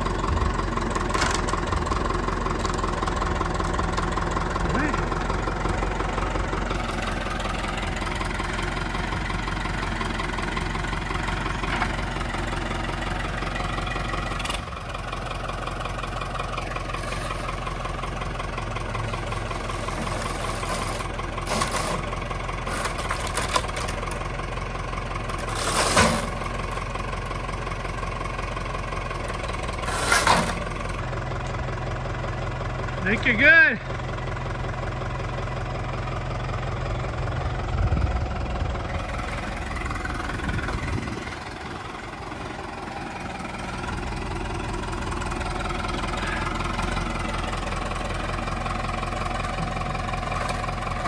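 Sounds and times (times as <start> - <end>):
tractor engine running: 0.0 - 51.0.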